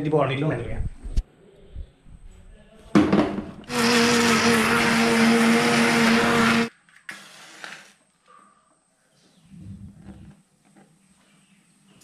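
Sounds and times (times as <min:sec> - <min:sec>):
mixer grinder running: 0:03.7 - 0:06.7.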